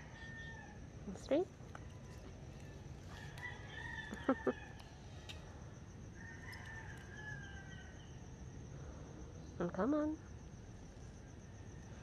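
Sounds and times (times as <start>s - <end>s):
faint rooster crows: 0.0s - 0.9s, 1.7s - 5.3s, 6.1s - 8.4s.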